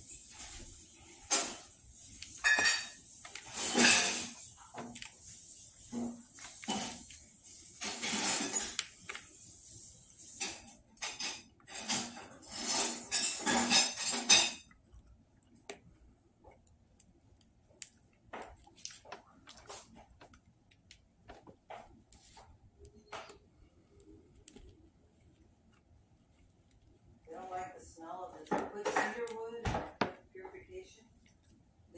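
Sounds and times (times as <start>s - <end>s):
quiet chewing: 14.7s - 27.3s
crunching fried chicken: 16.7s - 21.1s.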